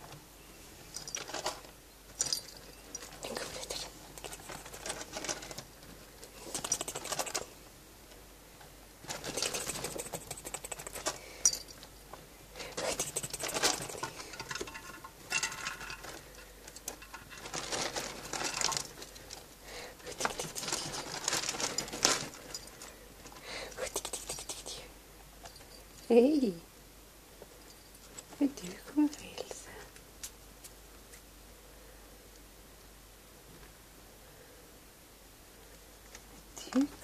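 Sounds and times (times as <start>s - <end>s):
rats scurrying in cage bedding: 0.9s - 7.5s, 9.0s - 11.2s, 12.8s - 23.4s.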